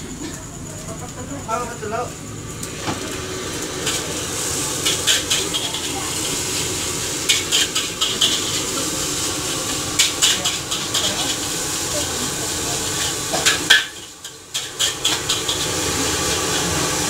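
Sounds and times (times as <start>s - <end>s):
food sizzling on a griddle: 0.0s - 17.0s
metal utensils clicking and scraping: 4.8s - 16.9s.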